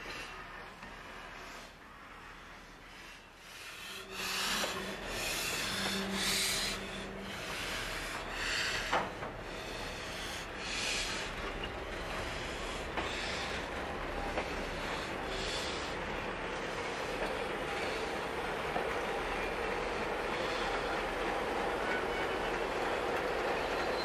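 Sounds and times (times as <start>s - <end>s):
hissing steam exhaust: 1.0s - 18.3s.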